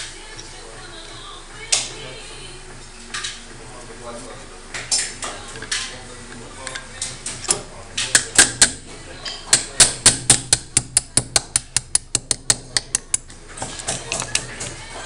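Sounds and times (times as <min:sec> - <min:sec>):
hammer tapping metal punch: 0:07.4 - 0:14.6.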